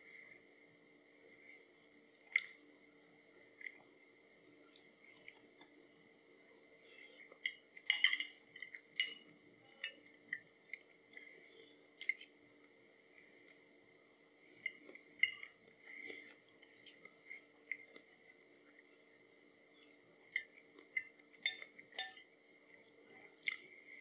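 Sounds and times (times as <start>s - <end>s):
faint steady tone: 0.0s - 24.0s.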